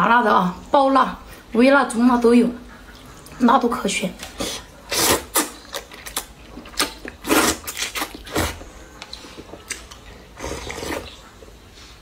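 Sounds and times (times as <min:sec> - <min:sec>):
person chewing: 0:04.2 - 0:11.3
person slurping noodles: 0:04.4 - 0:05.6, 0:10.4 - 0:11.2.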